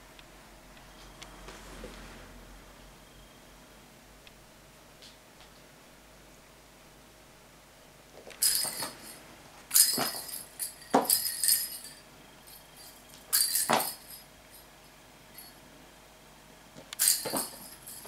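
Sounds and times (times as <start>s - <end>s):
jingle-bell balls rattling on floor: 8.3s - 14.7s, 15.4s - 15.6s, 17.0s - 18.0s.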